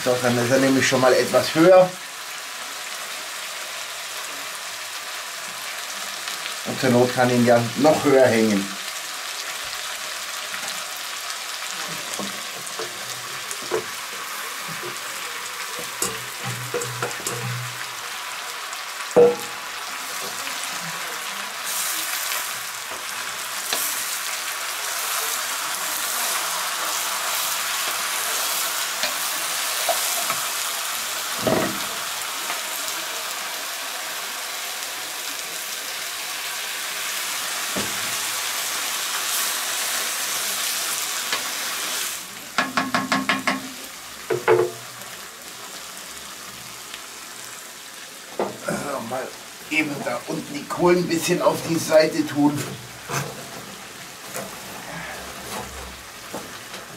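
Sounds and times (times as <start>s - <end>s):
food sizzling in a pot: 0.0s - 56.9s
spoon knocking against pot: 19.2s - 19.5s, 42.6s - 44.8s.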